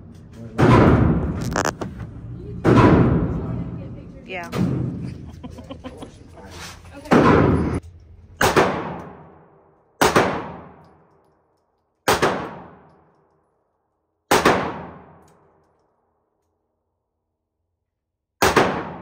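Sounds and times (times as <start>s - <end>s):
handgun shots echoing: 18.4s - 19.0s.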